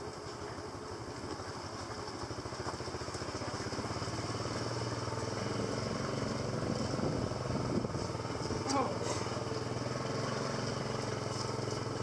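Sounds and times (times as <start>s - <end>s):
small motorbike engine running: 0.0s - 12.0s.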